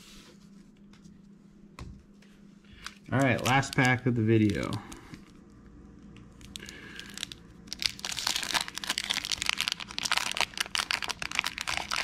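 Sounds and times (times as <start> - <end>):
card pack wrapper tearing: 3.1 - 4.8, 6.4 - 12.0.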